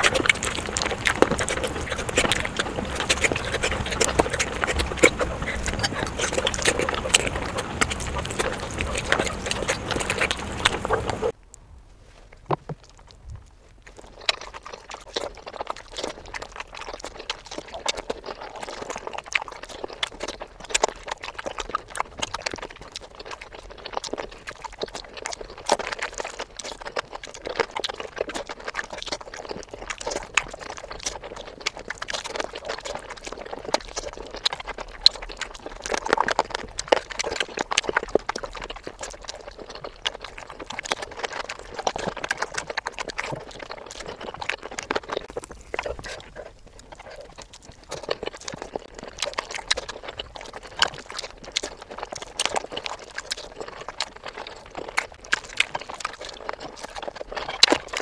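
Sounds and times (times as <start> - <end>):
quick mouth clicks: 0.0 - 11.3
lip and mouth smacks: 0.0 - 11.4, 12.3 - 58.0
wet chewing: 0.0 - 11.4, 12.3 - 58.0.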